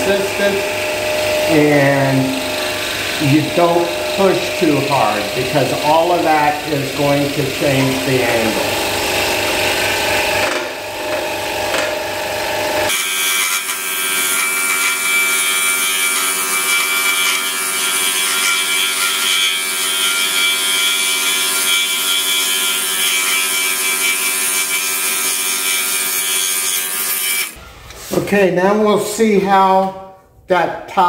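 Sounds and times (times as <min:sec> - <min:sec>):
scroll saw cutting wood: 0:00.0 - 0:27.6.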